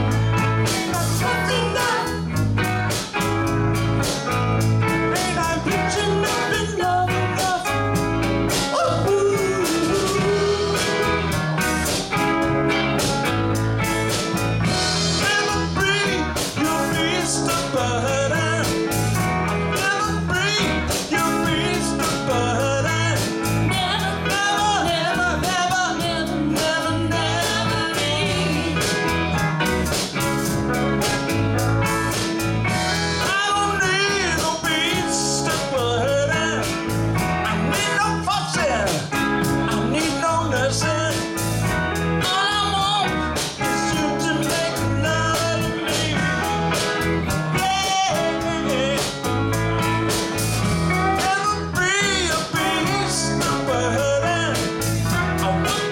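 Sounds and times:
live band playing: 0:00.0 - 0:55.9
woman singing: 0:00.7 - 0:02.2, 0:08.7 - 0:11.1, 0:19.8 - 0:29.0, 0:42.2 - 0:43.2.

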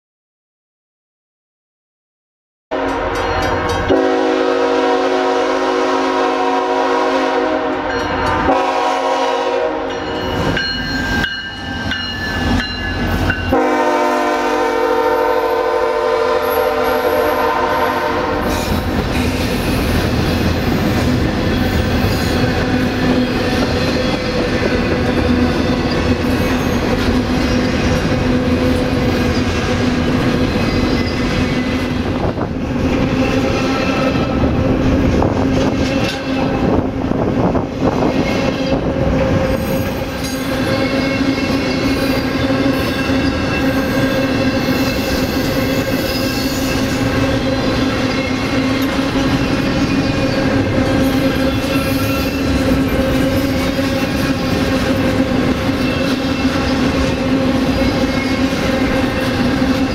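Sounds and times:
locomotive horn blasts: 0:02.7 - 0:10.2, 0:13.5 - 0:18.8
train wheels rumbling on rail: 0:02.7 - 0:59.9.

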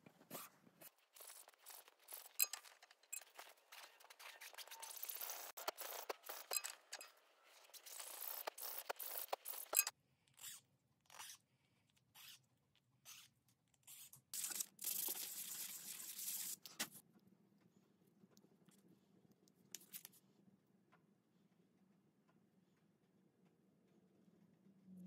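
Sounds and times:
wood sanded on sandpaper: 0:03.8 - 0:06.5, 0:07.7 - 0:09.8.

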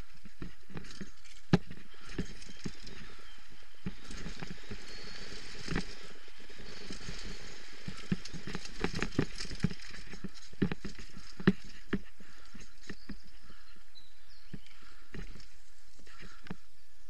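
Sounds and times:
bike knocks and rattles: 0:00.0 - 0:13.6
bike tyre noise on dirt: 0:00.0 - 0:17.0.

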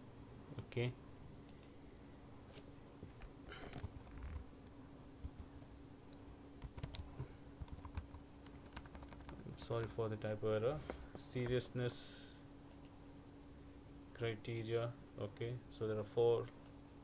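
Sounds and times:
faint steady hum: 0:00.0 - 0:17.0
computer keyboard typing: 0:06.6 - 0:09.9.

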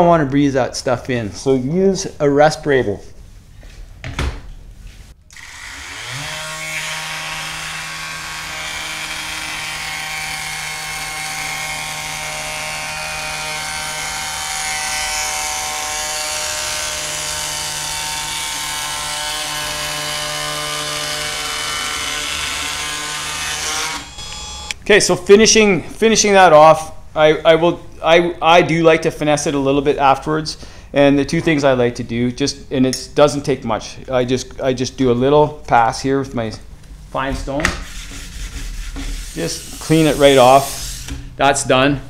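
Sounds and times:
electric edge tuner motor humming: 0:21.3 - 0:24.8.

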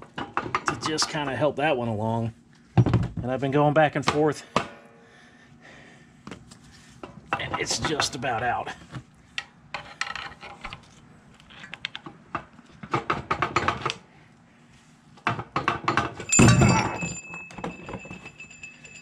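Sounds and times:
metal clinks and knocks: 0:15.6 - 0:19.0
thin metallic ring: 0:16.2 - 0:19.0.

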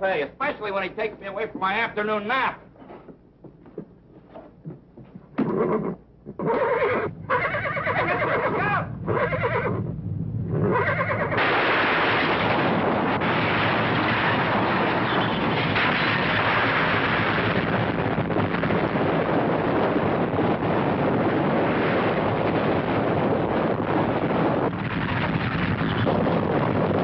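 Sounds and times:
horse whinnying: 0:05.4 - 0:09.9, 0:10.5 - 0:11.4
loud steady rushing noise: 0:08.2 - 0:27.0.

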